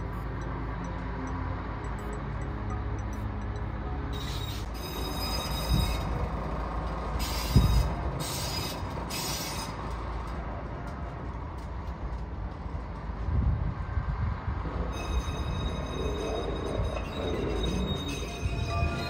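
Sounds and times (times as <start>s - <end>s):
steel wheels squealing on rails: 4.2s - 11.0s, 14.7s - 19.0s.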